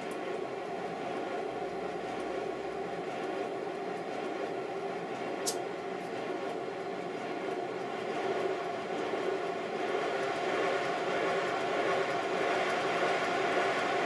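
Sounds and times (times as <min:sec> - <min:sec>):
model locomotive wheels running: 0:00.0 - 0:14.0
sharp click: 0:05.4 - 0:05.6.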